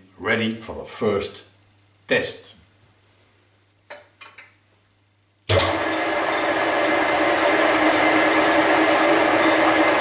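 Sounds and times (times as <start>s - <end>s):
milling machine motor whirring: 5.5s - 10.0s.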